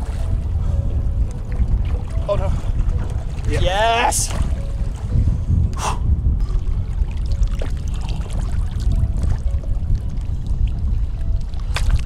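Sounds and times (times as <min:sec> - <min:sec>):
water splashing and sloshing: 0:00.0 - 0:05.8, 0:06.4 - 0:12.0
low wind rumble on microphone: 0:00.0 - 0:12.0.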